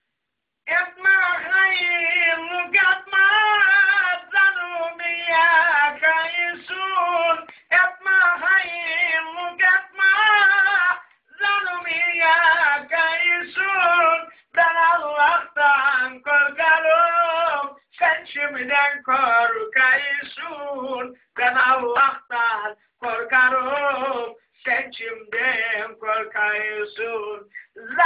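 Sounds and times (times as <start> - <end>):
person singing unaccompanied folk song: 0.7 - 28.0
short breaths: 7.5 - 7.7, 27.5 - 27.8.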